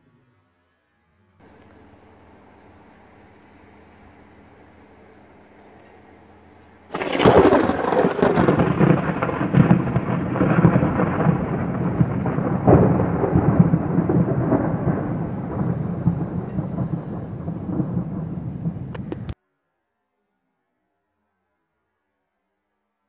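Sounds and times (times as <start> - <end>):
thunder cracking and rumbling: 1.4 - 19.4.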